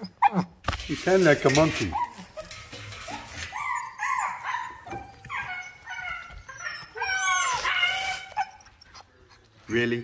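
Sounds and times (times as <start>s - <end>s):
puppy yipping and squealing: 0.0s - 0.6s, 1.8s - 9.4s.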